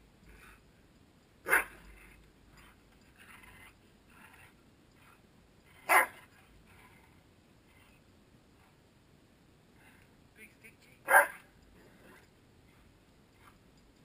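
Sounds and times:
dog barking: 1.5 - 1.8, 5.9 - 6.2, 11.1 - 11.5.

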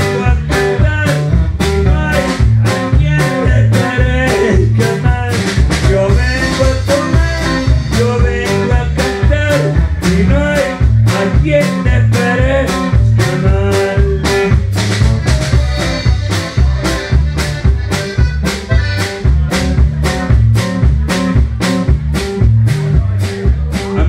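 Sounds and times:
bass and drums beat: 0.0 - 24.0
button accordion playing: 14.7 - 19.5.

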